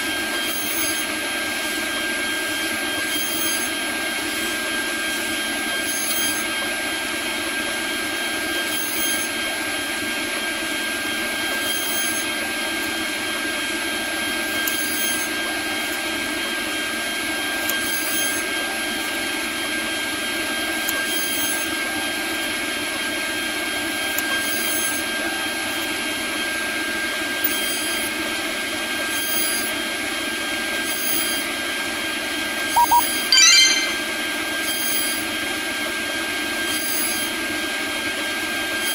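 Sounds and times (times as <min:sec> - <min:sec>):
short sharp sounds: 0:32.8 - 0:34.1.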